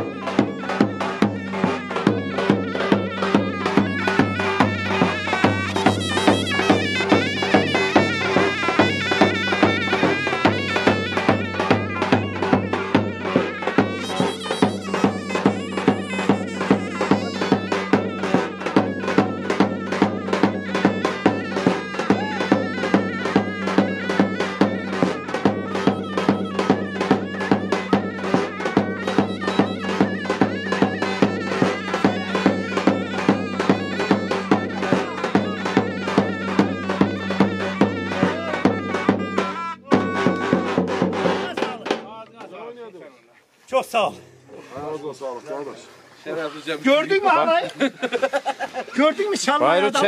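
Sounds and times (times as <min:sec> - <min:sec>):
shrill reed wind instrument melody: 0:00.0 - 0:41.6
drum beating: 0:00.0 - 0:42.9, 0:43.7 - 0:50.0.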